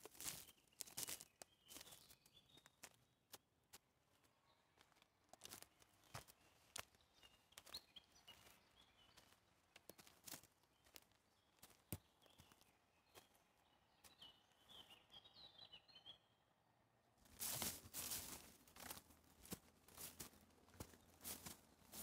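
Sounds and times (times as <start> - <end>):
footsteps on forest floor: 0.0 - 14.7, 17.2 - 22.0
bird singing faintly: 0.2 - 3.1, 5.9 - 16.6
rustling through tall grass: 17.3 - 22.0.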